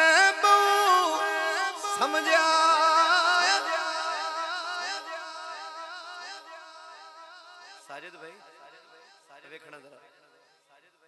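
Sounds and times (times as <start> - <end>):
man singing unaccompanied: 0.0 - 8.3.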